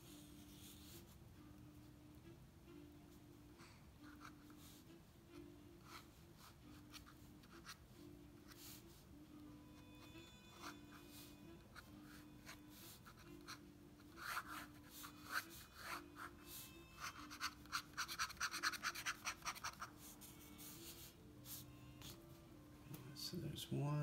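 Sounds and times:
pen nib scratching on paper: 0.1s - 1.2s, 5.8s - 9.0s, 10.0s - 22.2s.

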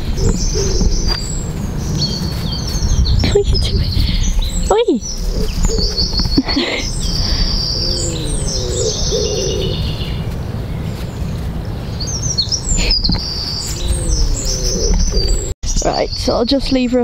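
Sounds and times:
low cooing call: 0.0s - 3.0s, 4.2s - 11.2s, 12.6s - 15.5s
small birds chirping and singing: 0.0s - 17.0s
steady low rumble: 0.0s - 17.0s.

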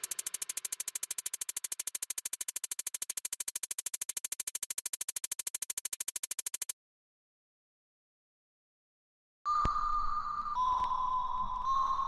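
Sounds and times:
rapid electronic pulse: 0.0s - 6.7s.

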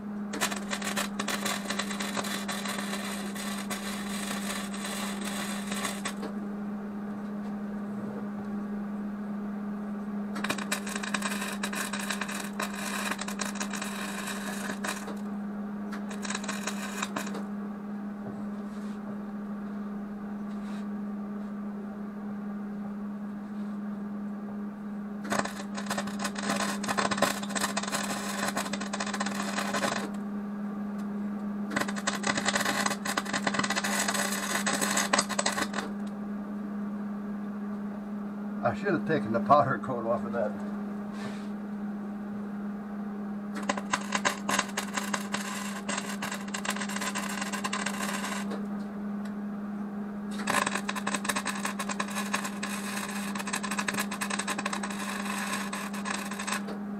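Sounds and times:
steady low hum: 0.0s - 56.9s
welder arc crackling: 0.3s - 6.3s, 10.4s - 15.3s, 15.9s - 17.4s, 25.2s - 30.2s, 31.7s - 36.1s, 43.6s - 48.6s, 50.3s - 56.8s.

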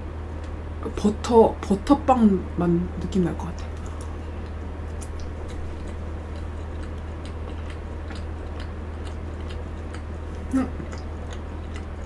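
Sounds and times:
wet mouth clicks chewing: 3.8s - 12.0s.

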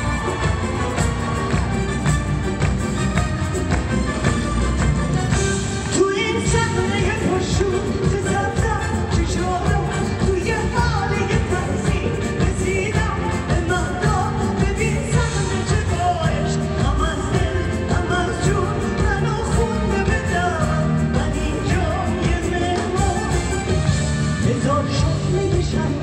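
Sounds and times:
band with drums bass and keyboards: 0.0s - 26.0s
woman singing into a microphone: 5.9s - 26.0s.

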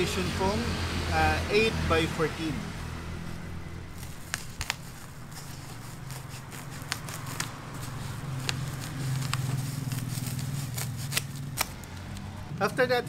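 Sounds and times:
scissors cutting foam: 4.0s - 12.3s.

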